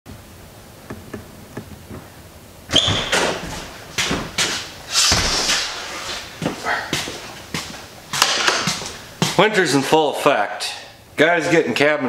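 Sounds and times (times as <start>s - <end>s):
door squeaking: 2.7s - 4.3s.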